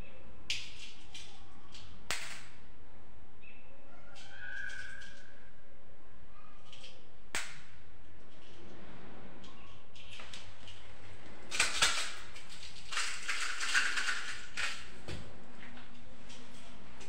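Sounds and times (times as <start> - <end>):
containers clicking on counter: 11.5 - 14.9
sprinkles rattling in a jar: 11.5 - 15.0.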